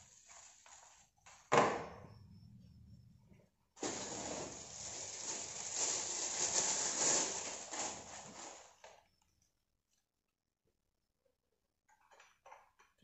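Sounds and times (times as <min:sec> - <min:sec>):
plastic packaging crinkling: 0:03.8 - 0:08.9.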